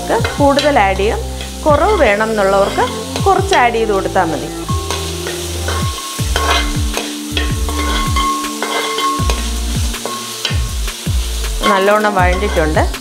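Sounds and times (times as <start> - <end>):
background music with beat: 0.0 - 13.0
frying in oil sizzling: 0.0 - 13.0
spoon scraping metal pan: 0.2 - 3.9, 4.7 - 13.0.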